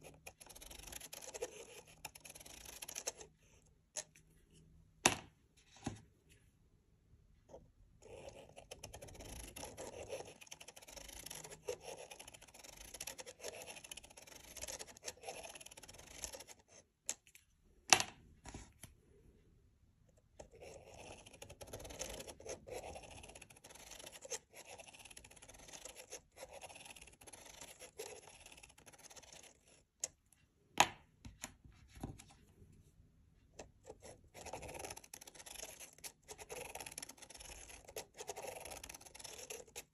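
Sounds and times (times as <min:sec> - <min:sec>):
marker scratching on paper: 0:00.0 - 0:03.3, 0:08.0 - 0:16.9, 0:20.4 - 0:29.9, 0:33.9 - 0:39.9.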